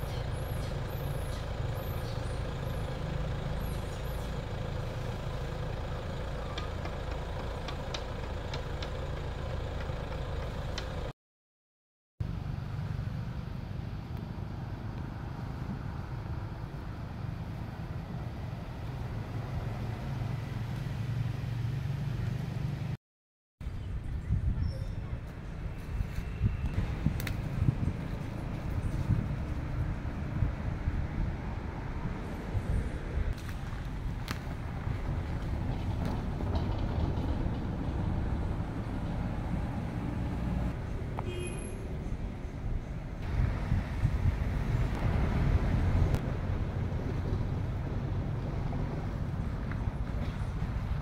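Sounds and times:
engine humming: 0.0s - 11.1s, 23.8s - 51.0s
traffic rumble: 0.0s - 11.1s, 12.2s - 23.0s, 23.6s - 51.0s.

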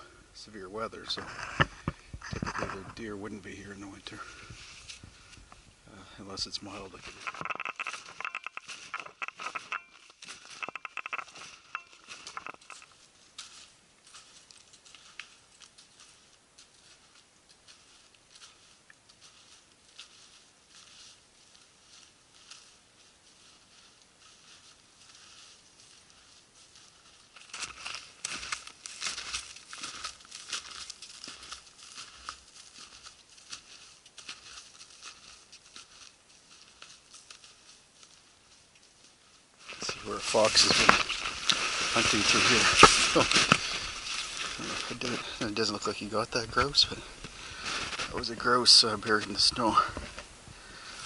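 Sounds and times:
snowshoe footsteps crunching snow: 6.4s - 51.0s
snowshoes crunching through snow: 39.6s - 50.2s.

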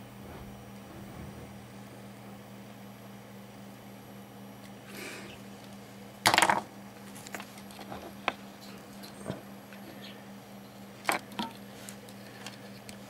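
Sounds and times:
steady low hum: 0.0s - 13.0s
clicks and rustles of handled wires: 5.6s - 13.0s
clatter on workbench: 6.3s - 6.7s.

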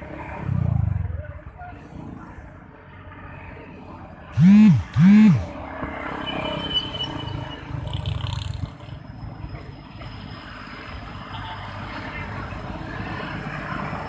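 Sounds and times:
train running: 4.4s - 5.4s.

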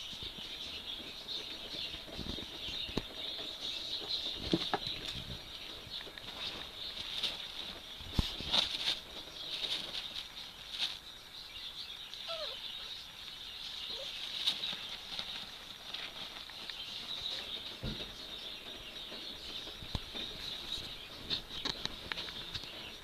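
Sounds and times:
puppy scratching: 3.7s - 11.0s, 13.6s - 17.8s
soft rustling of fabric: 4.2s - 11.2s.

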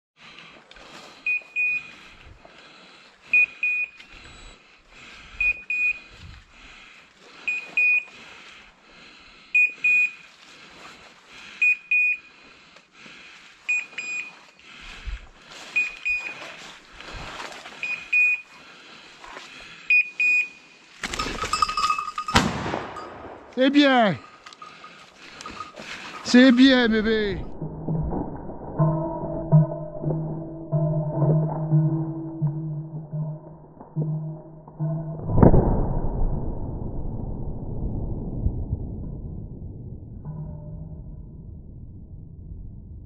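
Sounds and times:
footsteps rustling through dry leaves: 15.2s - 17.8s.

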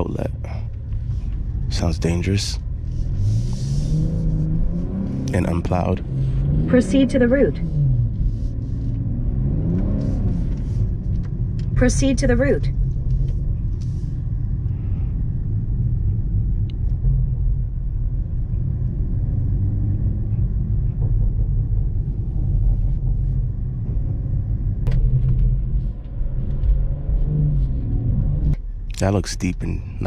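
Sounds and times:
car driving low rumble: 0.0s - 30.0s.

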